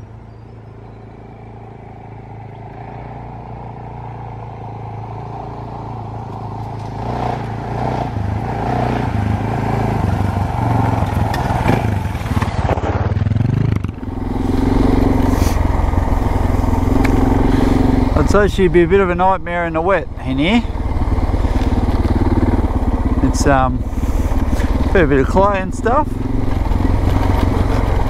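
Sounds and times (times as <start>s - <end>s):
motorcycle engine under load: 0.0s - 28.0s
motorcycle clatter: 10.1s - 28.0s.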